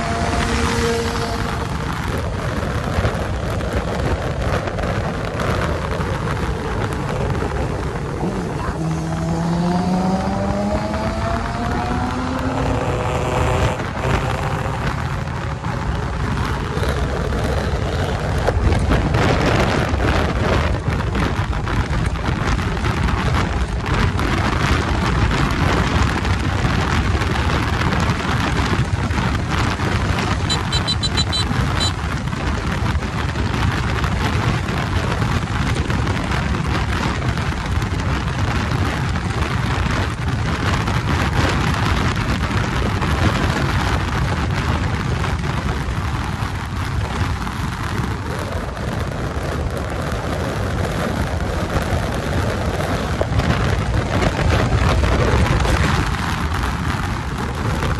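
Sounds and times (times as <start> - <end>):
motorcycle engine running low: 0.0 - 57.9
wind rushing over microphone: 0.0 - 57.9.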